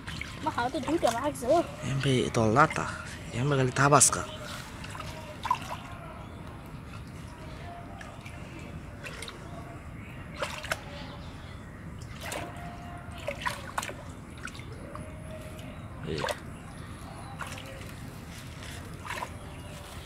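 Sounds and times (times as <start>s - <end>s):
water drips: 0.0s - 2.9s, 12.0s - 16.5s
hands splashing in muddy water: 4.5s - 6.0s, 10.3s - 10.9s, 12.0s - 14.9s, 17.3s - 20.0s.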